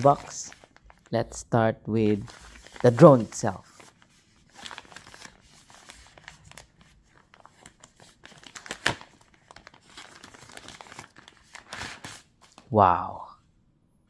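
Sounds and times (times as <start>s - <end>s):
plastic bag crinkling: 0.0s - 1.1s, 2.1s - 12.2s.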